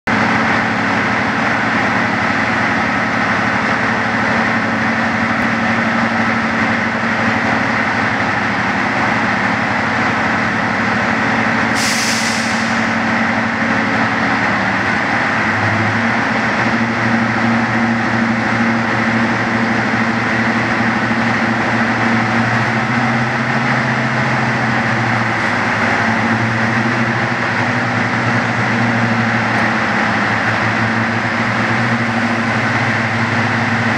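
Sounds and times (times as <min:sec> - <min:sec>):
diesel locomotive engines droning: 0:00.1 - 0:33.9
air hiss: 0:11.8 - 0:13.0.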